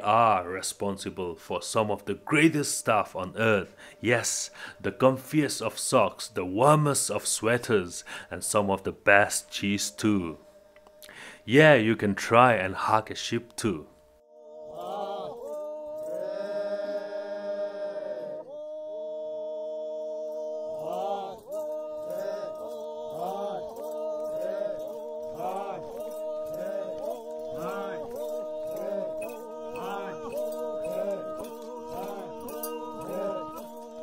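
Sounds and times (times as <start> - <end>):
chant-like voice: 0.0 - 10.4, 11.4 - 34.0
steady drone: 22.0 - 34.0.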